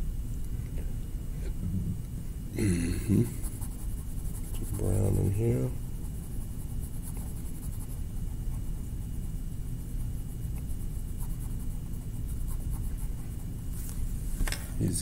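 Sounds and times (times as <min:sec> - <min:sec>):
low room rumble: 0:00.0 - 0:15.0
colouring tool scratching paper: 0:03.2 - 0:13.8.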